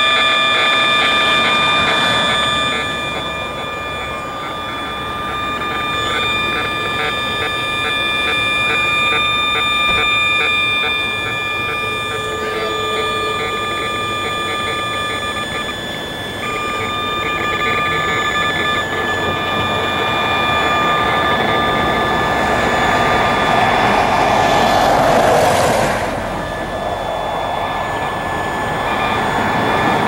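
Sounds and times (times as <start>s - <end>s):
steady high electronic tones: 0.0s - 30.0s
passing vehicle rushing: 22.4s - 28.4s.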